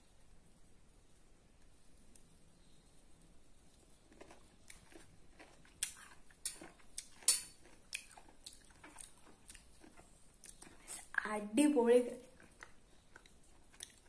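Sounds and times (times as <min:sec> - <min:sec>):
chewing crunchy mango: 0:03.7 - 0:11.2, 0:12.2 - 0:14.0.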